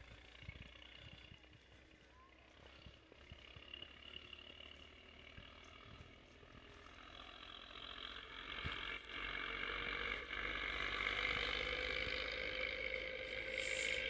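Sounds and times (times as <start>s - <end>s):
high-pitched drone: 12.9s - 14.0s.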